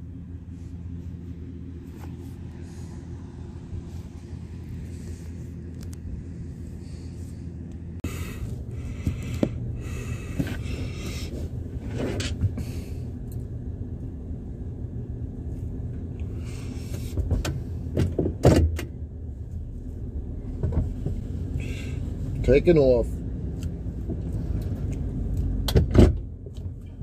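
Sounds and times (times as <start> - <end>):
vehicle engine idling: 0.0 - 27.0
clicks and knocks in cab: 17.1 - 18.9, 25.6 - 26.6.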